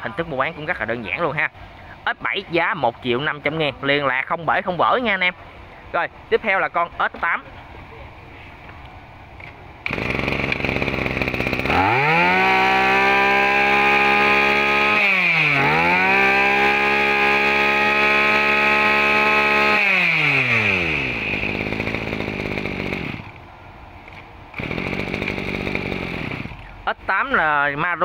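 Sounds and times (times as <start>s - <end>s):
brush cutter engine revving: 9.8s - 23.4s, 24.0s - 27.0s.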